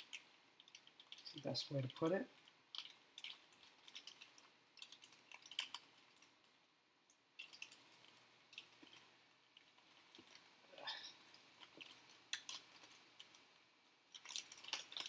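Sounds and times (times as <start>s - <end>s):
plastic bag crinkling: 0.0s - 6.3s, 14.1s - 15.0s.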